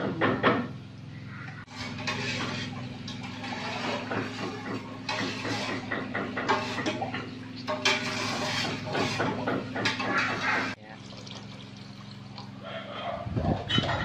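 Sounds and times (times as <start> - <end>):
water pouring into pot: 10.6 - 12.6.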